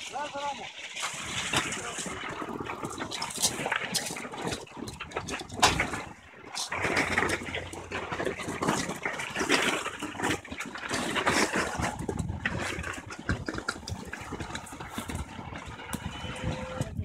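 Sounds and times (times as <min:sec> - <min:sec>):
pebbles crunching and scraping: 0:00.0 - 0:17.0.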